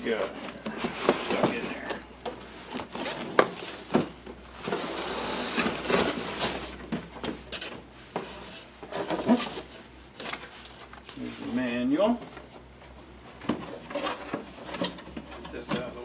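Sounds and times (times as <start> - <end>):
cardboard scraping: 0.1 - 9.8.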